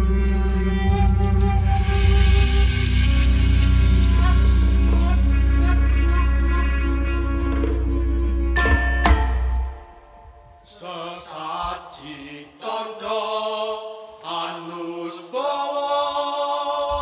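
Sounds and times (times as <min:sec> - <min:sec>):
ensemble with bass guitar: 0:00.0 - 0:08.6.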